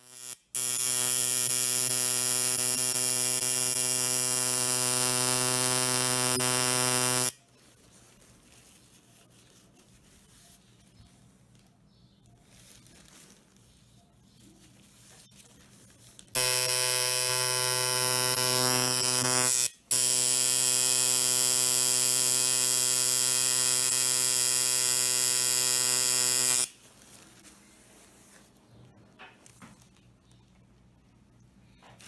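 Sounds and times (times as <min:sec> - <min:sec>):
tattoo machine buzzing: 0:00.0 - 0:07.4, 0:16.4 - 0:26.8.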